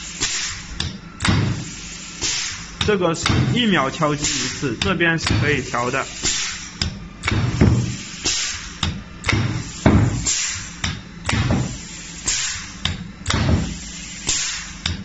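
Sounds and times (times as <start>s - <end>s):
hiss of exhausting air: 0.0s - 15.0s
air hammer knocking: 2.8s - 3.6s, 6.3s - 8.0s, 8.8s - 11.8s, 12.8s - 15.0s.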